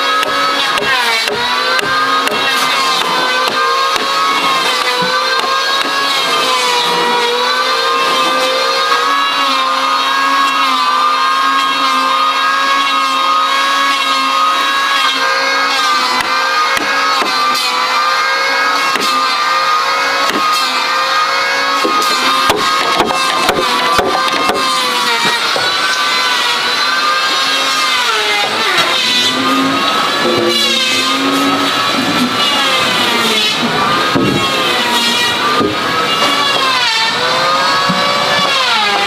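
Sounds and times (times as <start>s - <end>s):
hammer striking chisel: 0.0s - 6.1s, 16.1s - 18.2s, 18.8s - 19.3s, 20.1s - 21.0s, 21.7s - 26.3s, 34.0s - 36.8s
steady pitched drone: 22.1s - 39.0s.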